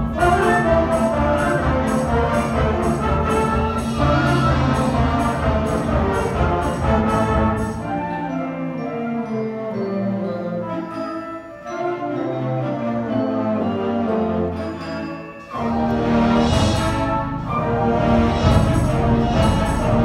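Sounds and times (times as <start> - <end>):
percussion beat: 0.0 - 8.1, 14.9 - 20.0.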